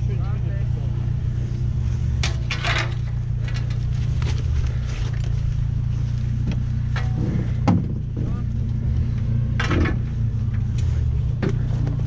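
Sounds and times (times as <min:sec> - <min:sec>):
vehicle engine idling: 0:00.0 - 0:12.0
rustling near microphone: 0:01.5 - 0:09.2.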